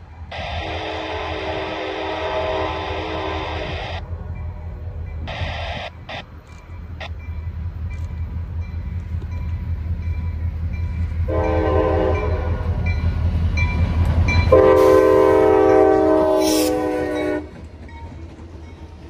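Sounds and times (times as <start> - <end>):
locomotive air horn: 0.3 - 4.0, 11.3 - 12.9, 14.5 - 17.6.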